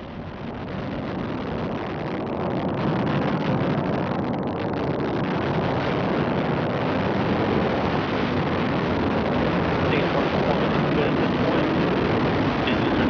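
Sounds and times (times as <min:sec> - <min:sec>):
rocket engines rumbling: 0:00.0 - 0:13.0.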